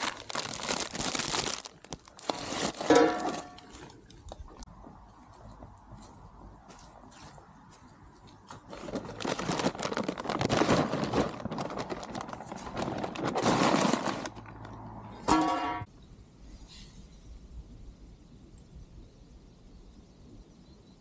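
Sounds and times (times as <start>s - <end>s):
paper bag crumpling: 0.0s - 4.0s, 8.6s - 14.7s.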